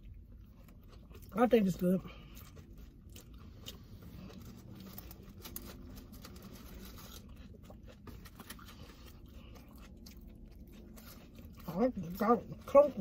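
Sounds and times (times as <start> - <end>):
aluminium foil crinkling: 4.2 - 9.5.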